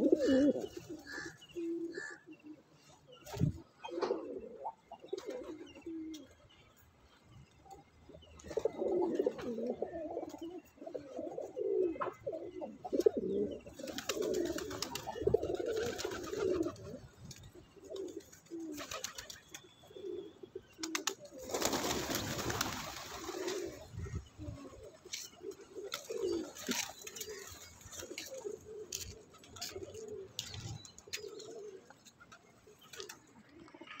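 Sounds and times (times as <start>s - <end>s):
pigeons cooing: 0.0s - 6.4s, 8.2s - 34.0s
wings flapping on takeoff: 21.0s - 23.3s.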